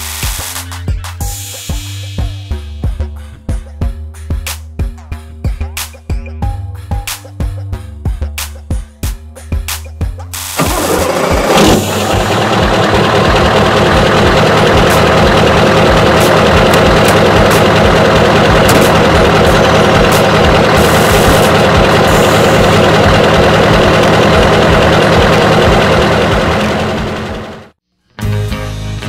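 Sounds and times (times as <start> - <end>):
truck engine idling: 10.6 - 27.8.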